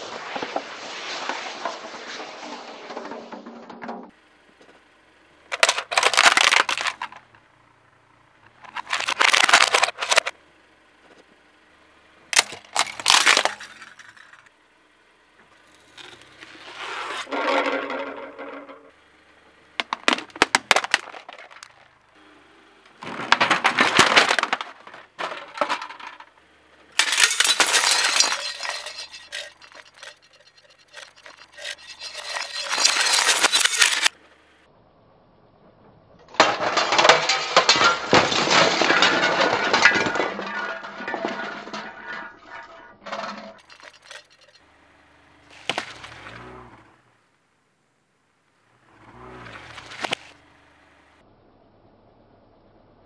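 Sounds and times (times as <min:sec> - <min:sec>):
tyre crushing metal objects: 0:05.5 - 0:07.3, 0:08.5 - 0:10.4, 0:12.4 - 0:14.5, 0:19.8 - 0:22.0, 0:22.9 - 0:26.3, 0:27.0 - 0:34.2, 0:36.3 - 0:44.6, 0:45.5 - 0:46.8, 0:49.1 - 0:50.4.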